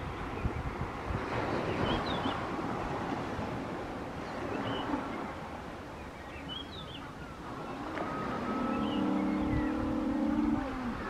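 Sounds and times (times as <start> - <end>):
faint high bird chirps: 6.2 - 9.8.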